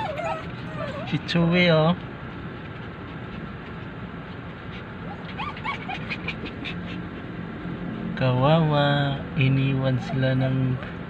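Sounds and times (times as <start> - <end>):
dog whining and whimpering: 0.0 - 1.4, 4.7 - 7.2, 9.9 - 11.0
steady background hum: 0.0 - 11.0.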